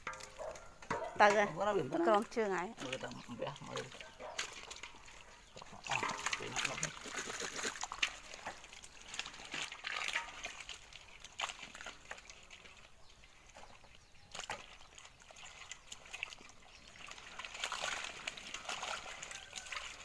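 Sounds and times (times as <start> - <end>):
hands rummaging through wet fish: 0.0 - 20.0.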